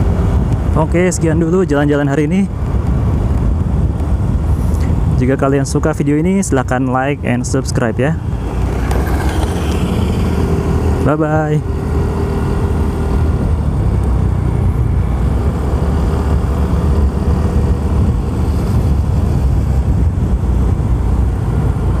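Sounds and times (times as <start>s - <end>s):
wind rumble on microphone: 0.0s - 22.0s
scooter engine running: 8.2s - 11.0s.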